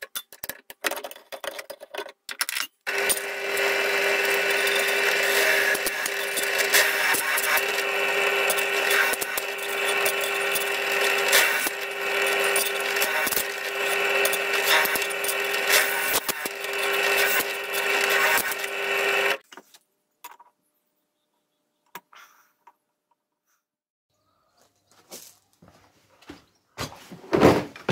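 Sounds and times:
drill cutting metal: 0:02.9 - 0:19.4
drill press motor hum: 0:02.9 - 0:19.4.

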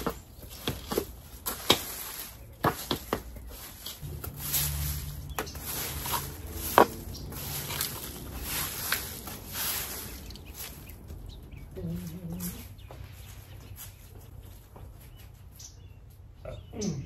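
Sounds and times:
hoe chopping and scraping soil: 0:00.0 - 0:11.2
low hum: 0:04.0 - 0:12.9.

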